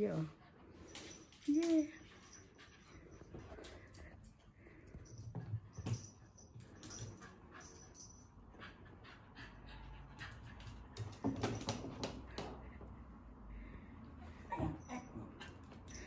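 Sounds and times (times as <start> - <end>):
dog panting: 7.0 - 11.3.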